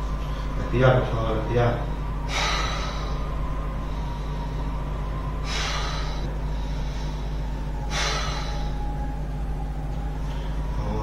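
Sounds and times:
steady low hum: 0.0 - 11.0
man gasping for breath: 1.9 - 4.6, 5.4 - 8.8.

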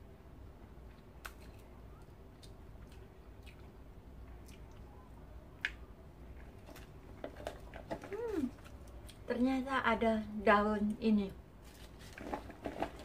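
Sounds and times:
chewing with soft squishes: 0.8 - 9.4.

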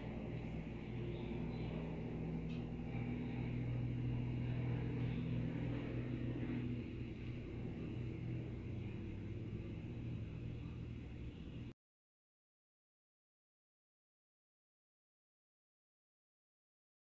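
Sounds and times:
low mechanical hum: 0.0 - 11.8.

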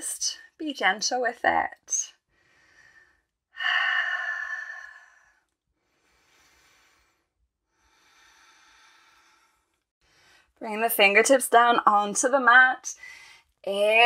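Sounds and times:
woman breathing deeply: 2.3 - 10.6.

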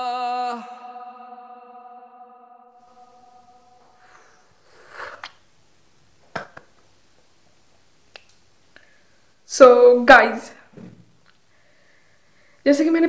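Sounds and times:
sung call to prayer: 0.0 - 4.4
breathy rush of noise: 0.0 - 5.2.

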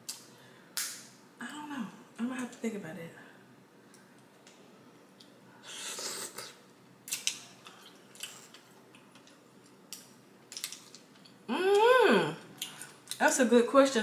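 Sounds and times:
slurping: 5.6 - 6.6.

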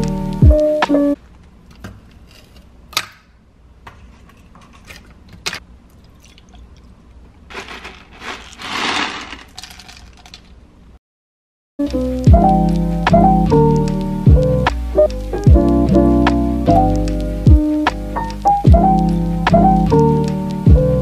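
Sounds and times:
rustling: 7.5 - 10.6.

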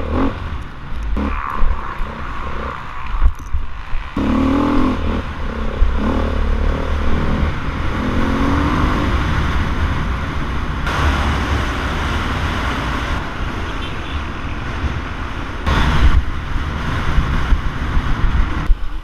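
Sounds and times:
motorcycle engine revving: 0.0 - 13.7
wind rumble on microphone: 0.0 - 19.0.

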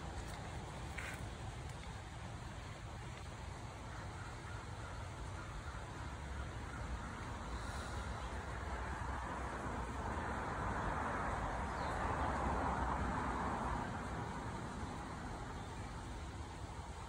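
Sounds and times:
background traffic rumble: 0.0 - 17.0.

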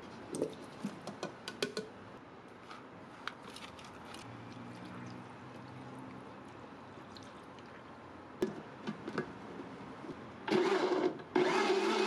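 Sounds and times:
blender running: 10.5 - 12.0.

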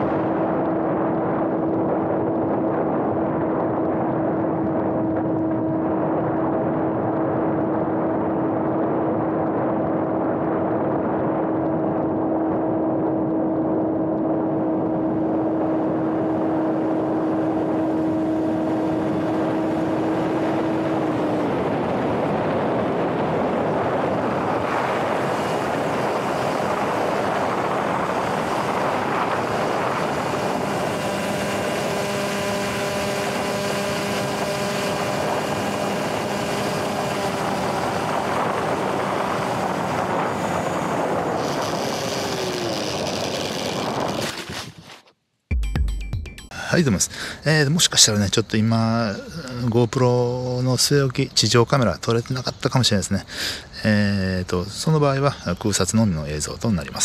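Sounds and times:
electric motor and propeller drone: 0.0 - 45.1
rush of air: 13.6 - 45.0.

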